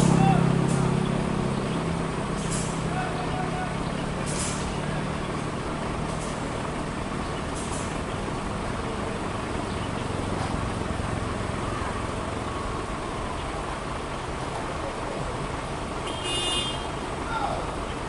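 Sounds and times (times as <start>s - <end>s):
diesel truck engines running: 0.0s - 18.0s
air brake hisses: 4.3s - 4.7s.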